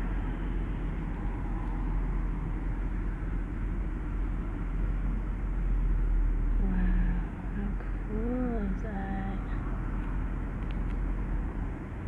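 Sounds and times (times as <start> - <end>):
vehicle rumble: 0.0 - 12.0.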